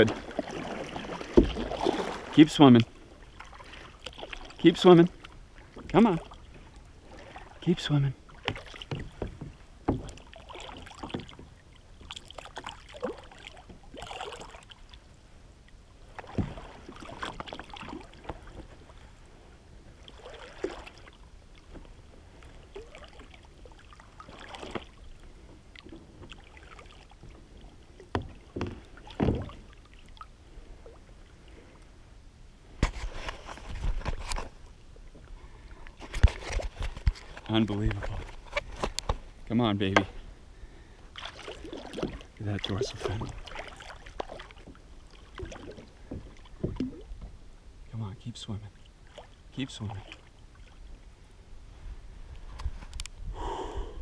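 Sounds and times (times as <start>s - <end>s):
rushing water: 0.0s - 31.8s, 32.8s - 51.4s
water sloshing around kayak: 0.0s - 53.4s
knocks against kayak hull: 1.3s - 1.7s, 8.4s - 10.2s, 28.1s - 29.6s.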